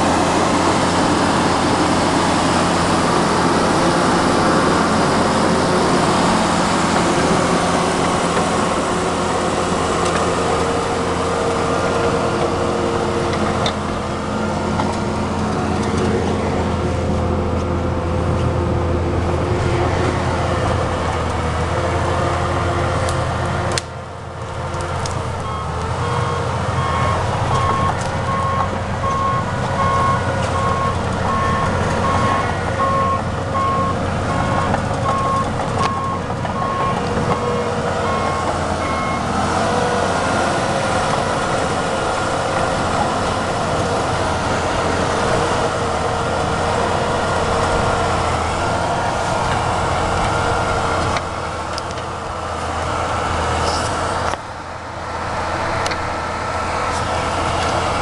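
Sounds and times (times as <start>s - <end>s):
diesel engine running: 0.0s - 58.0s
reversing alarm beeping: 25.4s - 39.3s.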